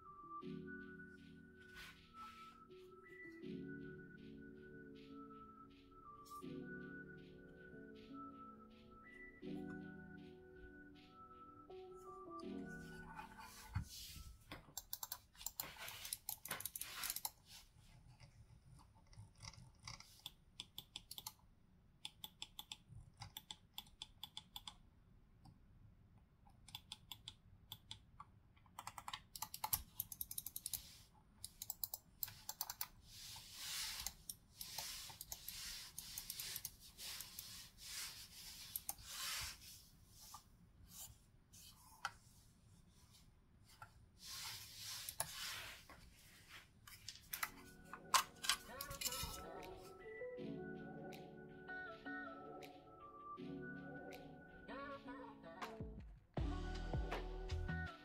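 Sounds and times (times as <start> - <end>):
computer mouse clicking: 14.7 - 17.4, 18.1 - 21.4, 22.0 - 24.8, 26.5 - 37.5, 38.6 - 39.3
mouse rubbing on cloth mat: 33.1 - 42.5, 44.2 - 46.6.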